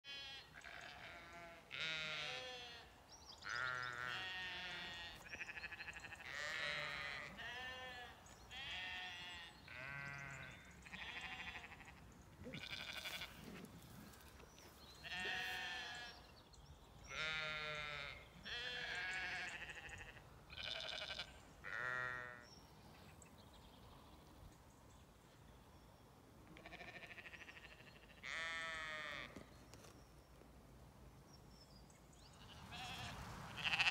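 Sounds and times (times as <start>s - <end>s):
sheep bleating: 0.1s - 2.9s, 3.5s - 13.5s, 15.0s - 16.2s, 17.0s - 22.4s, 26.5s - 29.4s, 32.4s - 33.9s.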